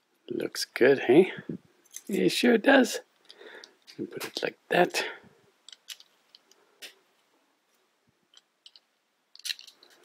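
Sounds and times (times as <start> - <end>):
plastic building bricks clicking: 5.7 - 6.6, 8.3 - 10.0.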